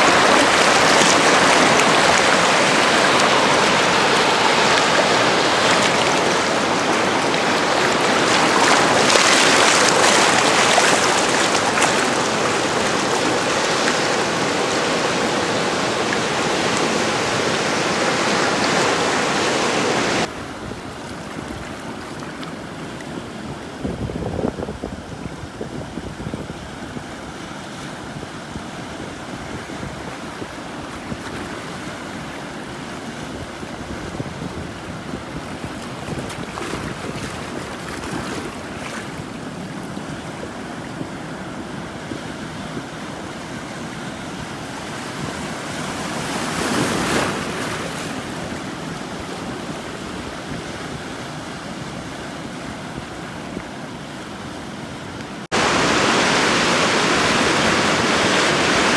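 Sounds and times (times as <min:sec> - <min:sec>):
surf breaking over rocks: 0:00.0 - 0:20.3, 0:42.8 - 0:50.5
wind buffeting microphone: 0:23.5 - 0:31.4, 0:33.1 - 0:41.4.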